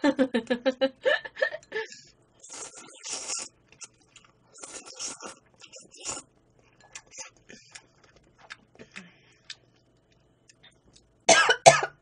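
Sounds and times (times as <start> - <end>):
person coughing loudly: 11.3 - 12.0.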